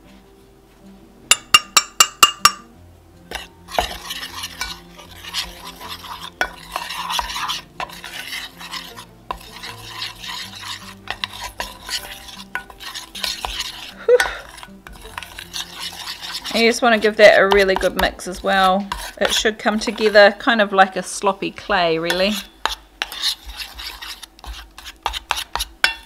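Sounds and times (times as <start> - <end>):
metal spoon clinking: 1.3 - 2.7, 3.3 - 20.2
spoon scraping saucepan: 3.3 - 26.0.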